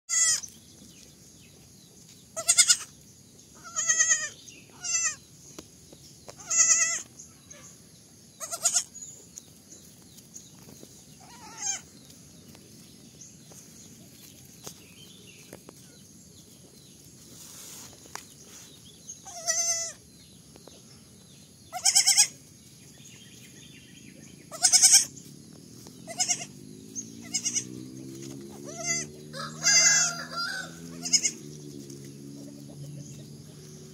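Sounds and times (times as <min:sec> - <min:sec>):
baby goat bleating: 0:00.1 - 0:00.5, 0:02.4 - 0:02.9, 0:03.6 - 0:05.2, 0:06.4 - 0:07.1, 0:08.4 - 0:09.0, 0:11.2 - 0:11.9, 0:19.2 - 0:20.0, 0:21.7 - 0:22.4, 0:24.5 - 0:25.1, 0:26.1 - 0:26.6, 0:27.3 - 0:27.7, 0:28.6 - 0:30.1, 0:30.9 - 0:31.4.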